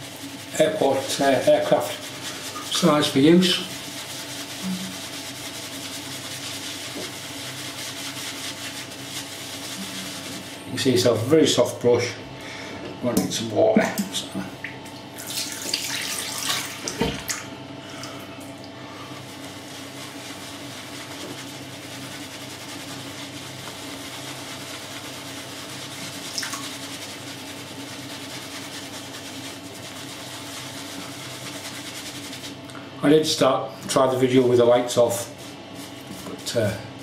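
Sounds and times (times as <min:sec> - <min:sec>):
tap running into sink: 0:16.5 - 0:17.4.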